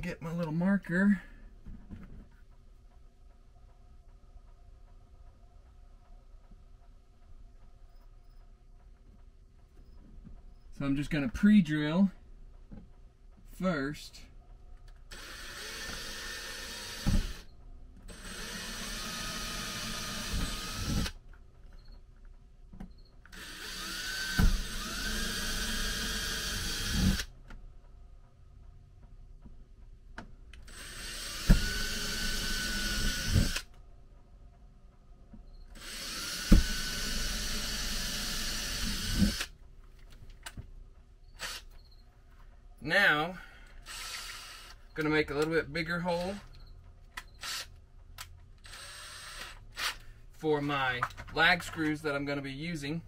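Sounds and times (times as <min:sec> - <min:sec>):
cordless drill whining: 0:15.1 - 0:17.5, 0:18.1 - 0:21.2, 0:23.3 - 0:27.3, 0:30.7 - 0:33.7, 0:35.7 - 0:39.5, 0:41.3 - 0:41.8, 0:43.8 - 0:45.0, 0:47.4 - 0:47.7, 0:48.6 - 0:50.1.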